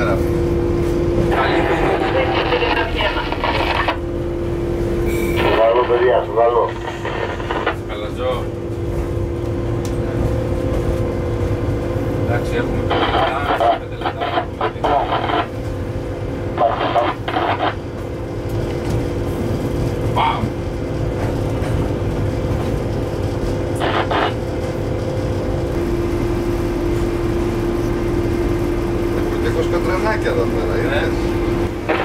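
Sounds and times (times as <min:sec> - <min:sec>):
locomotive low rumble: 0:00.0 - 0:32.0
electric hum: 0:01.1 - 0:08.1, 0:12.8 - 0:18.7, 0:22.4 - 0:29.2, 0:31.2 - 0:32.0
muffled radio voice: 0:01.3 - 0:04.0, 0:05.3 - 0:08.0, 0:12.6 - 0:15.5, 0:16.5 - 0:17.8, 0:23.8 - 0:24.4.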